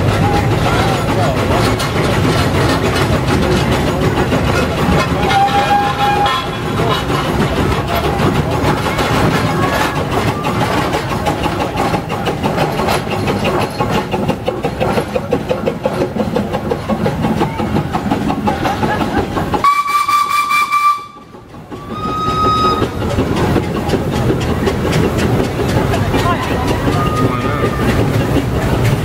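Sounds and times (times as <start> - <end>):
steam engine running: 0.0 - 29.0
steam whistle: 5.2 - 6.6, 19.6 - 23.0.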